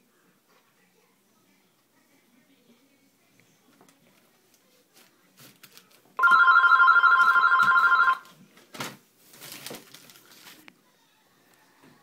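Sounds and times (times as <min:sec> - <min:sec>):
electronic telephone ringing: 0:06.2 - 0:08.3.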